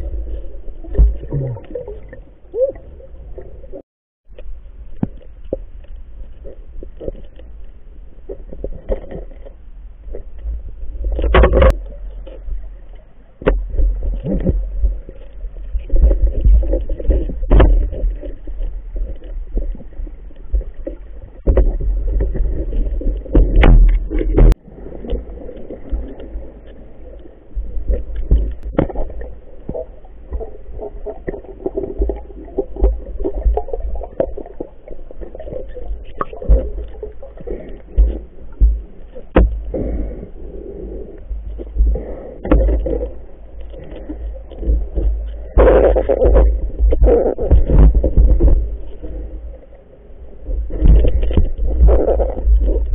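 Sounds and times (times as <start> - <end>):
underwater water surges: 4.7 - 52.9
sharp clicks and knocks: 21.4 - 24.6.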